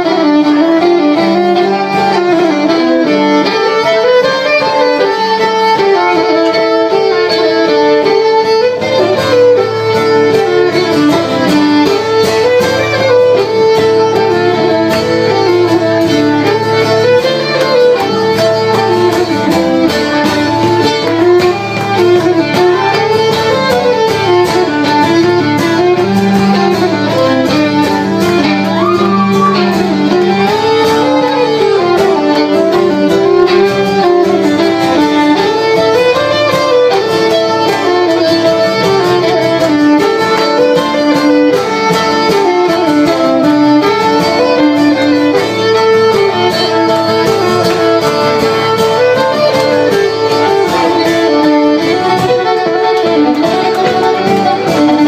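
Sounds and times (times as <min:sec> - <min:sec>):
acoustic guitar strumming chords: 0:00.0 - 0:55.0
fiddle playing fast tune: 0:00.0 - 0:55.0.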